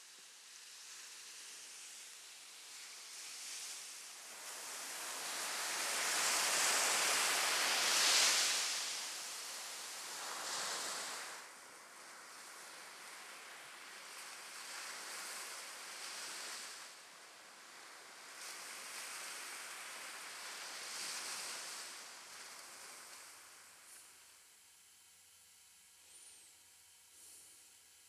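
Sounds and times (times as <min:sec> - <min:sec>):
sea surf breaking on shore: 0:04.5 - 0:11.5.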